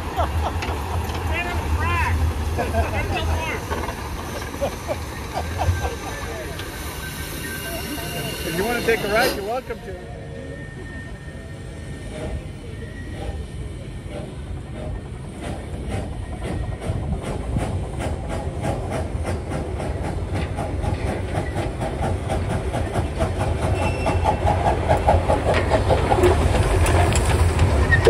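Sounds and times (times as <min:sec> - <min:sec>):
steam locomotive chuffing: 0:00.0 - 0:28.0
train wheel clicks: 0:00.5 - 0:01.4, 0:03.6 - 0:07.2, 0:14.1 - 0:28.0.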